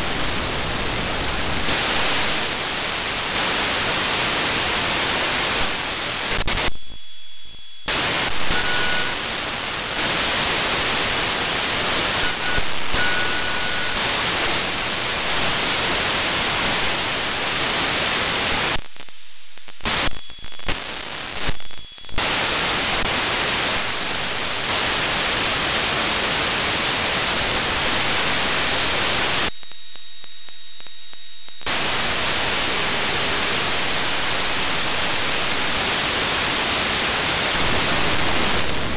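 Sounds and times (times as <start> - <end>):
radio static hiss: 0.0 - 38.9
faint steady high tone: 6.9 - 9.2, 12.0 - 14.6.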